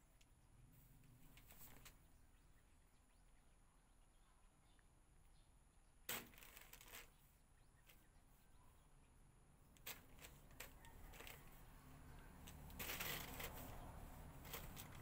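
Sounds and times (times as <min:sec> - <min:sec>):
plastic bag rustling: 0:06.1 - 0:07.2, 0:09.8 - 0:11.6, 0:12.5 - 0:15.0.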